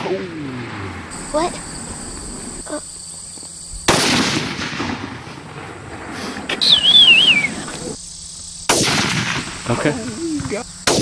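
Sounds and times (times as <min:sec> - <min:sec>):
rifle shot: 0:03.9 - 0:06.1, 0:08.7 - 0:09.6
high falling whistle: 0:06.5 - 0:08.0.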